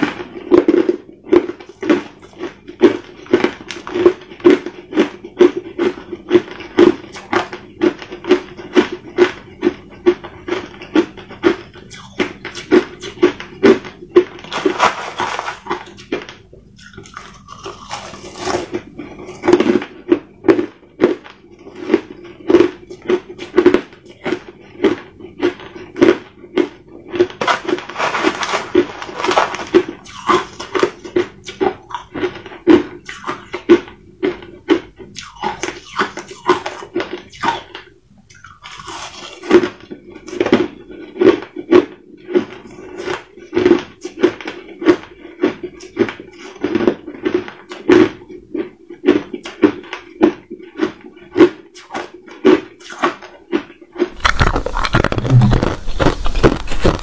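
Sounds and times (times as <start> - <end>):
crushed ice crunched between teeth: 14.4 - 20.7, 26.0 - 32.4, 52.8 - 57.0
metal spoon scraping ice in tub: 27.4 - 29.8.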